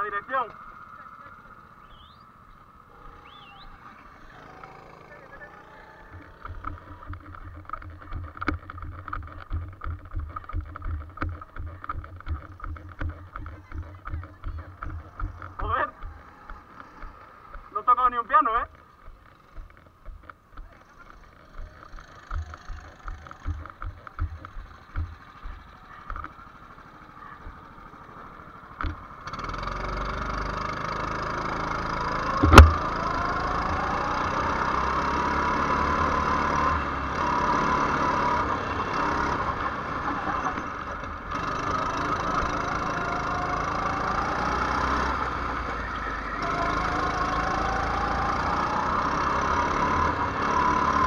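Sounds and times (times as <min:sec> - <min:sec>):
go-kart engine: 0:00.0 - 0:51.0
sharp knock: 0:32.4 - 0:32.9.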